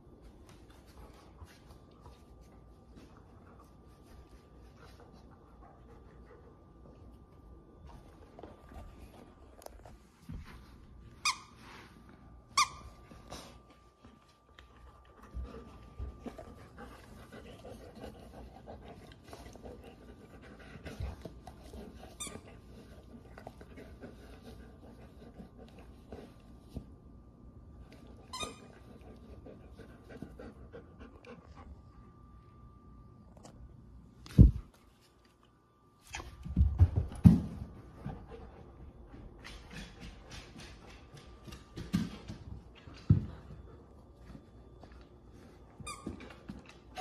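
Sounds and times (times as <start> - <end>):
dog panting: 14.8 - 26.7, 28.8 - 31.8.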